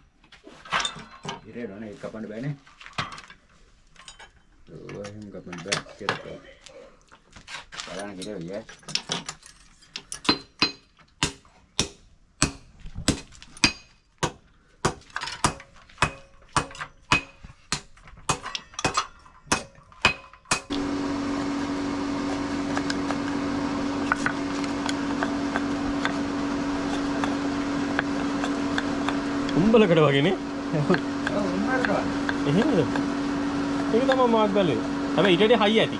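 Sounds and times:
hammer striking metal: 10.2s - 20.8s
steady machine hum: 20.6s - 35.9s.

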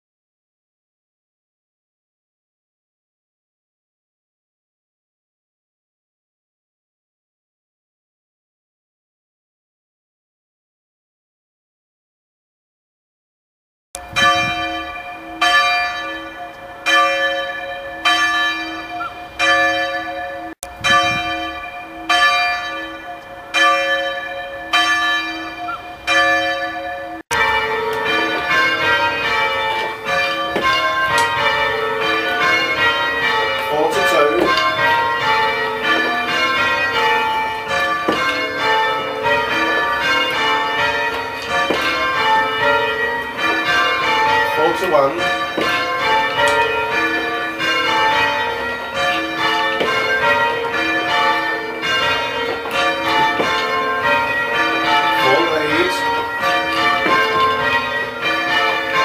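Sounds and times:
church bells change ringing: 14.0s - 59.0s
single church bell striking: 14.0s - 59.0s.

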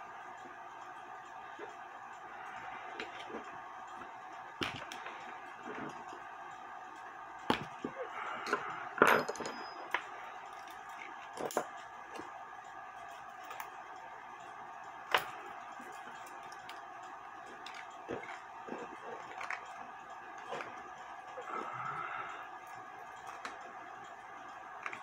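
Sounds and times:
steady background hum: 0.0s - 25.0s
metallic clicks and clinks: 8.5s - 11.8s.

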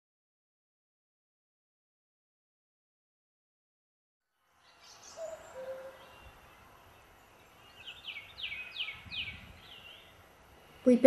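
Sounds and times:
background hiss: 4.3s - 11.0s
birds singing: 4.4s - 11.0s.

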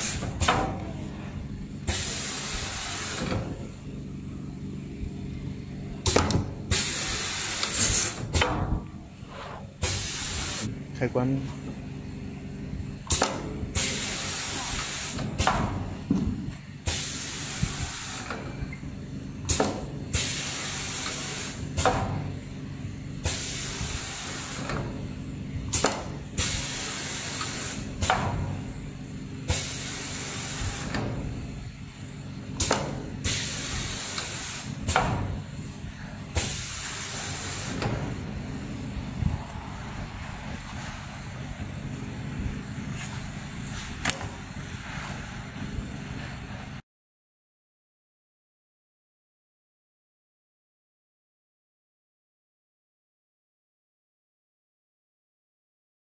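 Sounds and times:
pneumatic hiss bursts: 0.0s - 0.8s, 1.8s - 3.7s, 6.0s - 10.7s, 13.0s - 16.0s, 16.8s - 18.8s, 19.5s - 22.4s, 23.2s - 25.1s, 25.7s - 28.6s, 29.4s - 31.6s, 32.6s - 38.5s
low machine hum: 0.0s - 46.8s.

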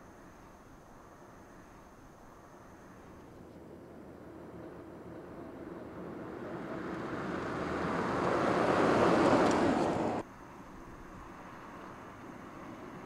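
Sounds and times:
car passing with tyre and wind noise: 3.3s - 13.0s.

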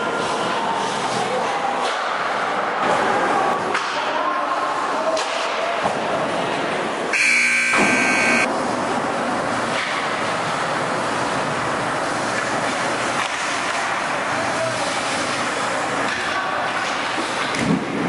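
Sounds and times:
hockey game arena noise: 0.0s - 18.0s
ice rink horn: 7.2s - 8.5s.

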